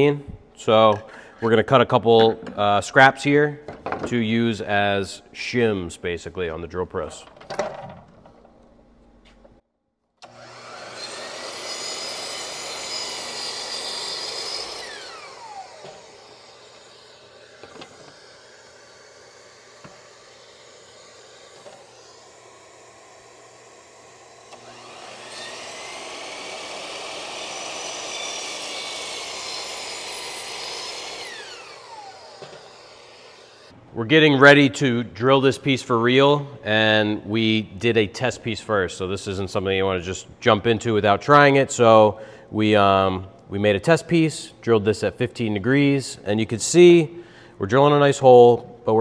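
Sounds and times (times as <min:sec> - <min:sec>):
miter saw cutting plywood: 0:10.2 - 0:33.8.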